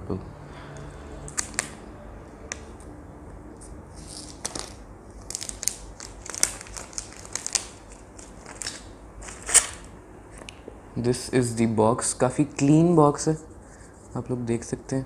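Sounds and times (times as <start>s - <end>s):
plastic shrink-wrap crinkling: 4.0s - 9.9s.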